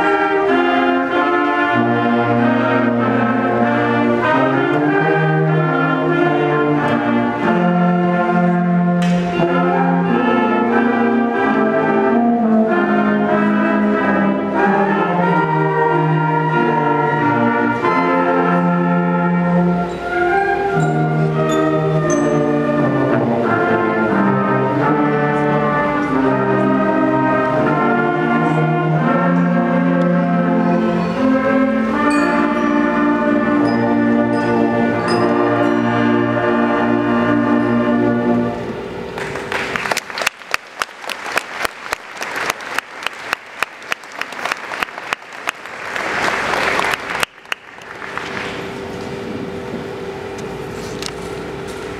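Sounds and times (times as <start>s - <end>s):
concert band playing: 0.0s - 40.6s
audience applause: 39.2s - 48.8s.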